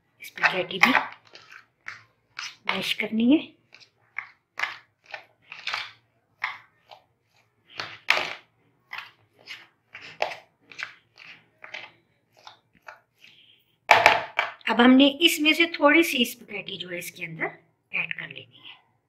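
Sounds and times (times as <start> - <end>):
fork mashing potatoes in a bowl: 0.2 - 13.5.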